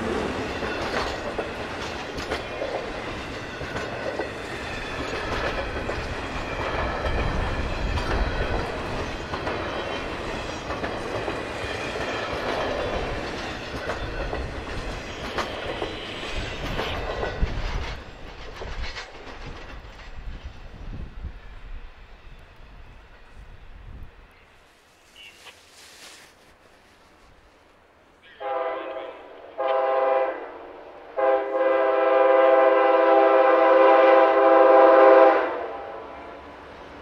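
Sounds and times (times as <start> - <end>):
freight train wheels clicking on rails: 0.0 - 23.2.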